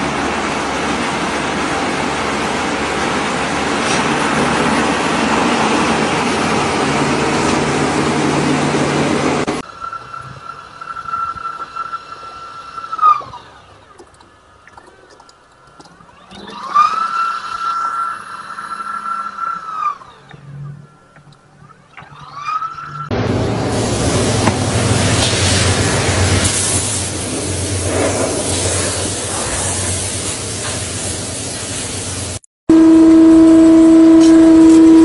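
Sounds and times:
rope-twisting machine running: 0:00.0 - 0:14.5, 0:15.3 - 0:26.6
printer motor whine: 0:15.8 - 0:23.5.

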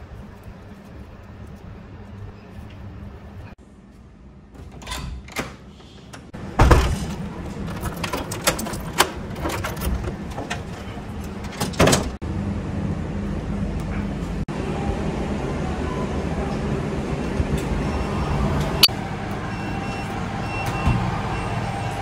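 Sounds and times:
door shutting with heavy thud: 0:06.3 - 0:12.2.

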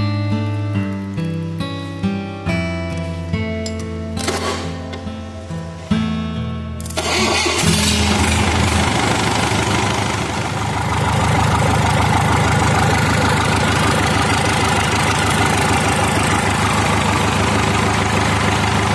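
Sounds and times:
diesel engine idling: 0:07.0 - 0:18.9.

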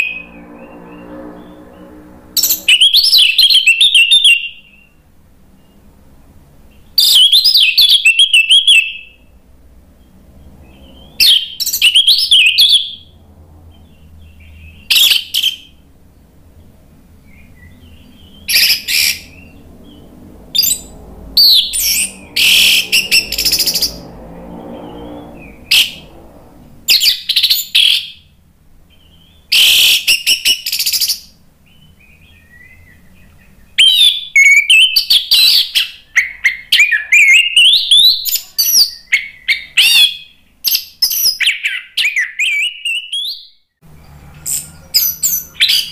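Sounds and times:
thrush singing whistles: 0:02.4 - 0:05.0, 0:06.8 - 0:09.4, 0:10.0 - 0:13.2, 0:13.9 - 0:15.9, 0:17.2 - 0:20.0, 0:20.6 - 0:26.1, 0:26.9 - 0:28.3, 0:29.0 - 0:43.6, 0:44.4 - 0:45.9.

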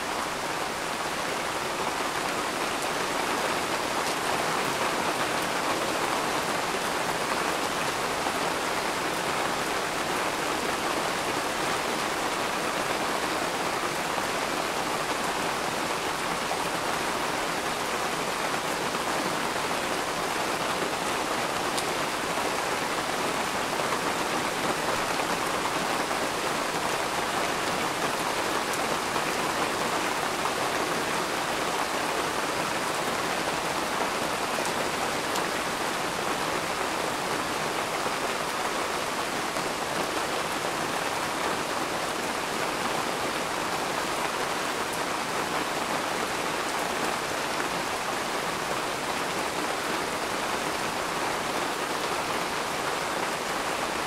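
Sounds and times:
rain falling steadily: 0:00.0 - 0:54.0.

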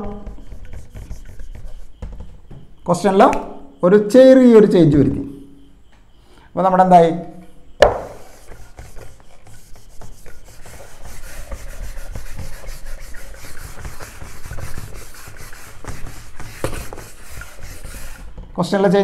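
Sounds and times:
eraser rubbing on whiteboard: 0:00.0 - 0:02.0, 0:08.0 - 0:18.4.

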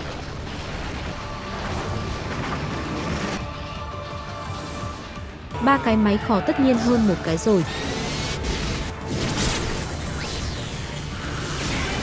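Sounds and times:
background music: 0:00.0 - 0:12.0.

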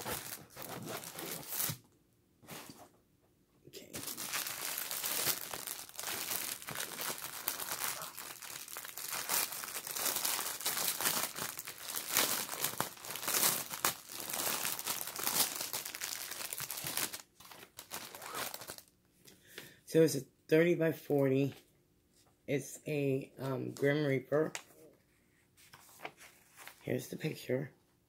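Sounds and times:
plastic bags crinkling: 0:00.0 - 0:01.8, 0:03.8 - 0:18.9.

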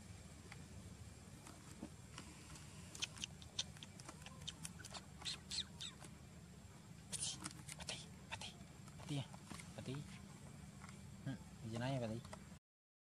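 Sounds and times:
low background hum: 0:00.0 - 0:12.6
high-pitched animal squeaks: 0:03.0 - 0:06.1.

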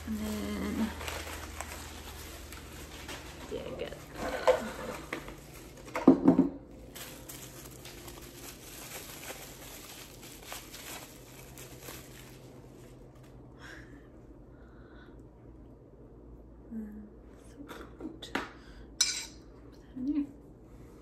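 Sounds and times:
plastic bag crinkling: 0:00.0 - 0:06.0, 0:06.7 - 0:13.4.

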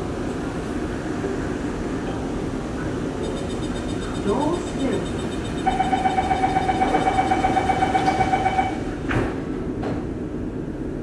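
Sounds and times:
low hum of stopped train: 0:00.0 - 0:11.0
rapid door warning beeping: 0:03.2 - 0:08.9
sliding doors shutting with thump: 0:09.0 - 0:10.1.

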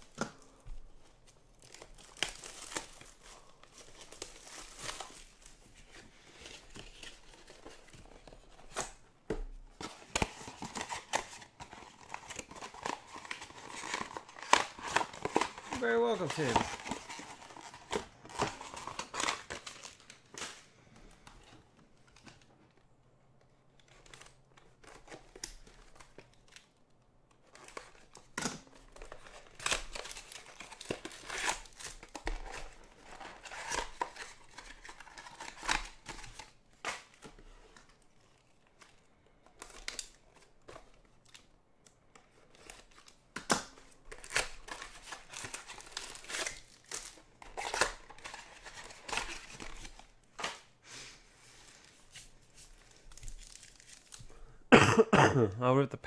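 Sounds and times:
foil packs crinkling: 0:01.2 - 0:09.0, 0:10.0 - 0:21.2, 0:27.4 - 0:38.9, 0:42.5 - 0:50.8, 0:51.6 - 0:54.5
cardboard tearing: 0:09.8 - 0:20.6, 0:27.5 - 0:37.2, 0:43.7 - 0:50.7.

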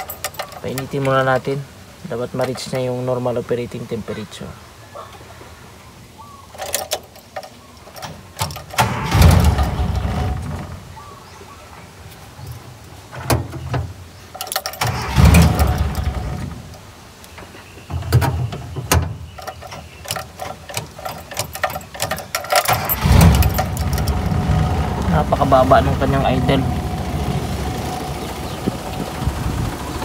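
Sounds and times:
car engine idling and revving: 0:14.8 - 0:16.7, 0:22.7 - 0:30.0.

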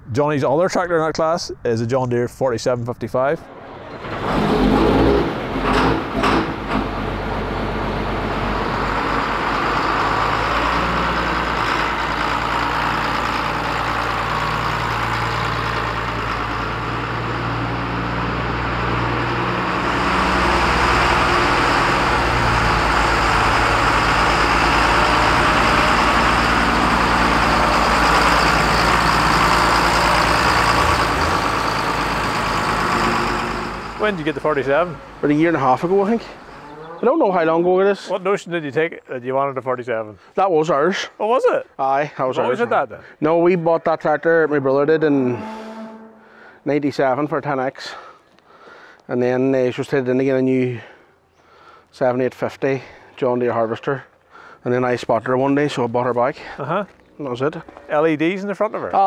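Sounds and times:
tractor diesel engine running: 0:03.5 - 0:36.6.

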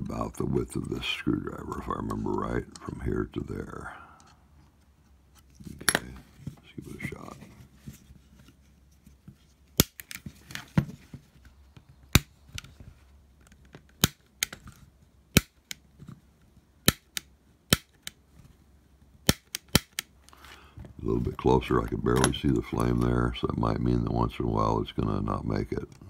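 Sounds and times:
piezo igniter snapping: 0:16.8 - 0:18.2, 0:19.2 - 0:20.1.

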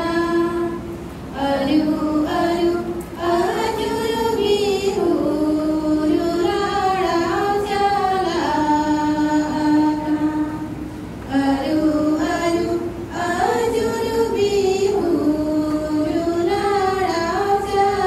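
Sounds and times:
voices singing slow melody: 0:00.0 - 0:18.0.

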